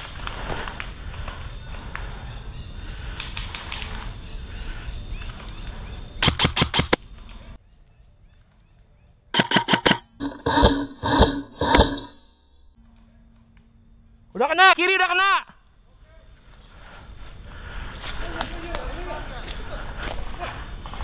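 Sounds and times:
outdoor background noise: 0:00.0 - 0:21.0
airsoft gun firing bursts: 0:06.2 - 0:07.0.

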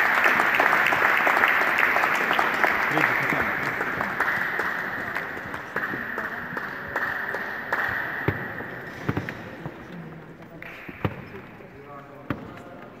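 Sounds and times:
audience applause: 0:00.0 - 0:08.1
single claps: 0:10.6 - 0:11.2.

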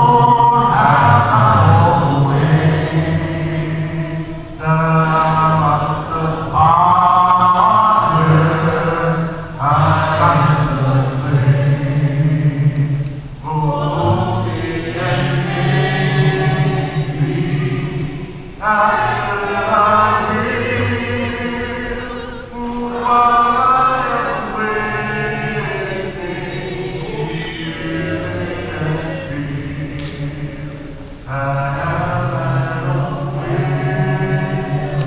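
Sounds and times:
congregation singing a hymn: 0:00.0 - 0:35.0.

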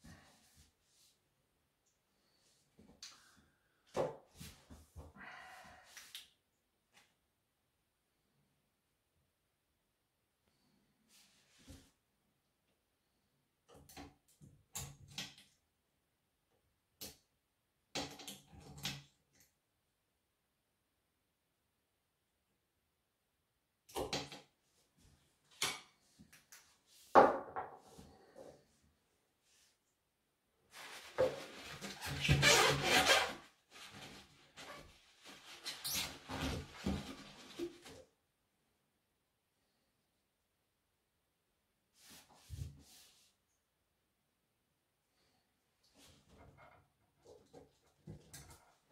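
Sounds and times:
paper towel rustling and rubbing: 0:30.7 - 0:37.9.

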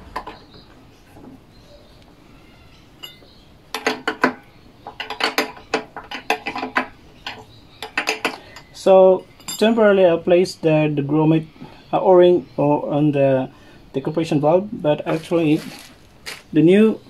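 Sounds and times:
spanner clinking against metal: 0:03.0 - 0:10.0.

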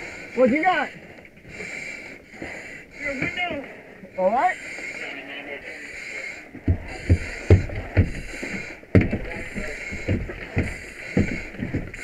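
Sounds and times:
breathing through mask regulator: 0:00.0 - 0:12.0
knocks and thumps: 0:06.6 - 0:12.0.

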